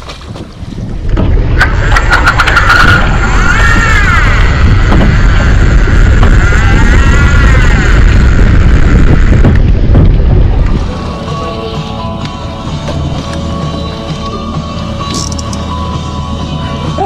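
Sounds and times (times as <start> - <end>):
rushing wind and water: 0.0 - 17.0
whine rising and falling in pitch: 1.5 - 14.0.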